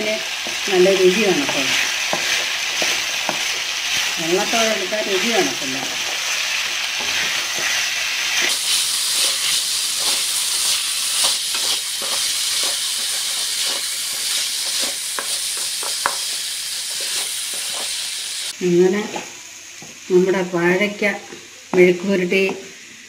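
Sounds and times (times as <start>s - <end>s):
plantain sizzling in hot oil: 0.0s - 23.0s
spatula scraping pan: 0.3s - 18.4s.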